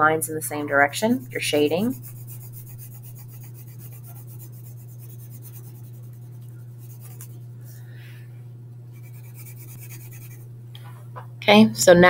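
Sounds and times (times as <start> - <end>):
steady low hum: 0.0 - 12.0
pencil scratching on paper: 1.1 - 7.4, 9.0 - 10.4.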